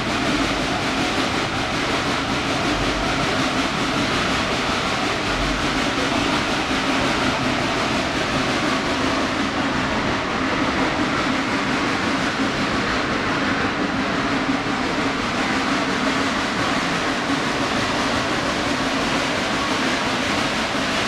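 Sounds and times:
steam locomotive working: 0:00.0 - 0:21.0
train cars rolling on rails: 0:00.0 - 0:21.0.

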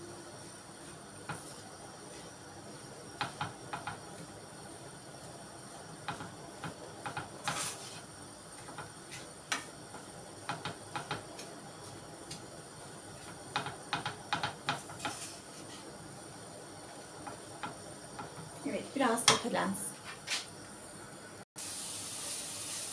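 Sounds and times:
faint sizzle: 0:00.0 - 0:22.9
wooden spatula scraping a frying pan: 0:07.2 - 0:09.7, 0:14.7 - 0:16.0.

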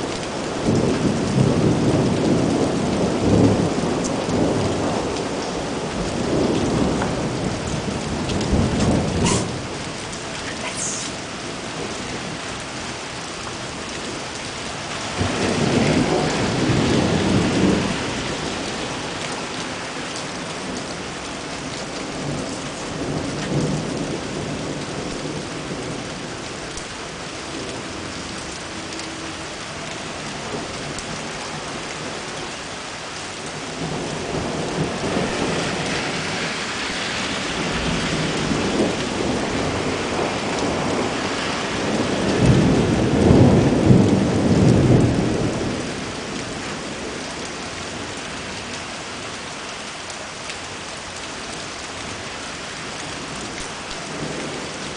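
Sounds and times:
heavy rain on wet streets: 0:00.0 - 0:54.9
rolling thunder: 0:00.5 - 0:10.0, 0:15.1 - 0:19.9, 0:33.6 - 0:47.2.

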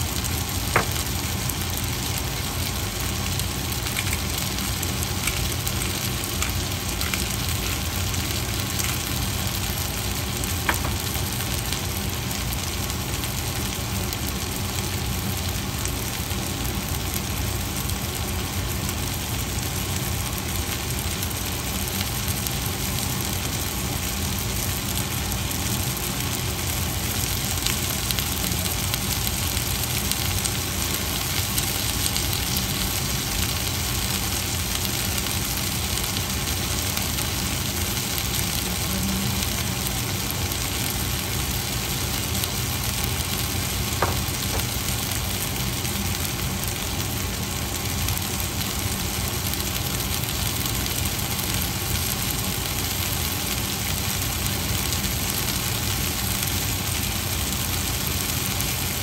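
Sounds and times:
low even hum: 0:00.0 - 0:49.6
food sizzling in a pan: 0:00.0 - 0:59.0.

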